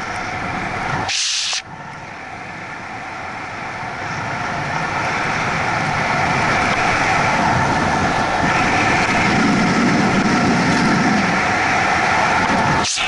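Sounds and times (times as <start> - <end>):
bicycle tyres on asphalt: 0.0 - 12.9
wind rushing over microphone: 0.0 - 13.0
brief hiss: 1.1 - 1.6.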